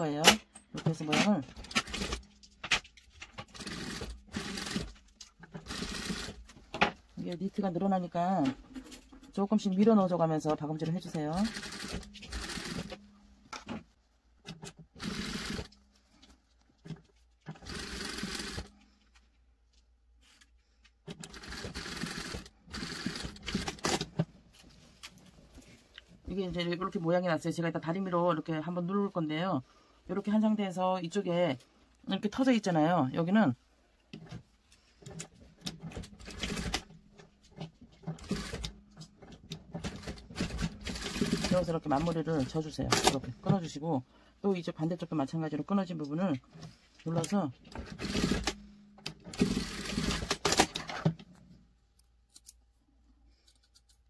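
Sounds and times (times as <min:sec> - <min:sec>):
industrial sewing machine stitching: 0:03.4 - 0:04.9, 0:05.6 - 0:06.4, 0:11.3 - 0:13.0, 0:15.0 - 0:15.7, 0:17.6 - 0:18.7, 0:21.2 - 0:24.0, 0:36.2 - 0:36.9, 0:38.1 - 0:39.0, 0:39.8 - 0:42.2, 0:47.8 - 0:48.6, 0:49.2 - 0:51.0.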